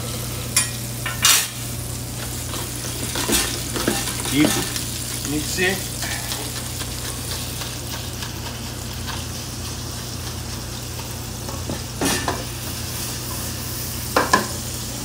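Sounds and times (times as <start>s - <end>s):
food sizzling in fat: 0.0s - 15.0s.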